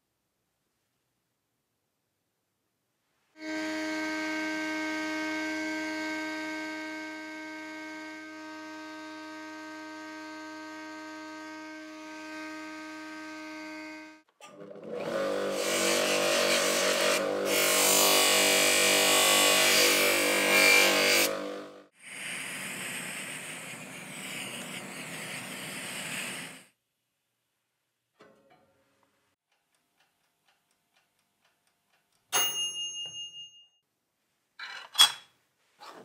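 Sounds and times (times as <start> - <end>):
small electric motor humming: 3.4 - 14.2, 15.0 - 21.9
power tool whining with hiss: 22.1 - 26.7.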